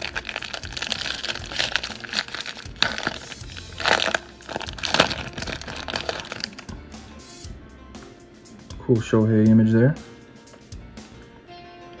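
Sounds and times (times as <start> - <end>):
foil wrapper crinkling: 0.0 - 6.8.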